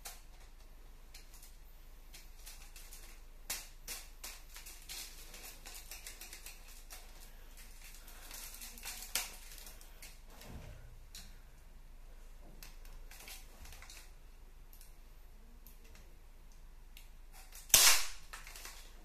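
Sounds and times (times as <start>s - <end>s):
sharp plastic snaps: 0.0s - 7.0s, 15.6s - 18.9s.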